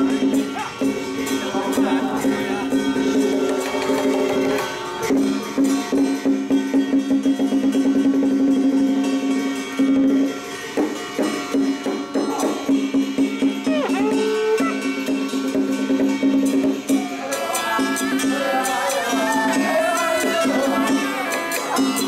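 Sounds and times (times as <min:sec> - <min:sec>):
wood block and drum strokes: 0:00.0 - 0:22.0.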